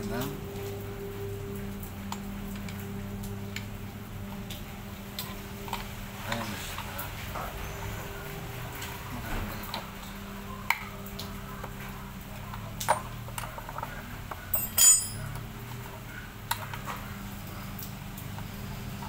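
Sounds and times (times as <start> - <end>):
metal tool clinking on bolts: 14.5 - 15.4.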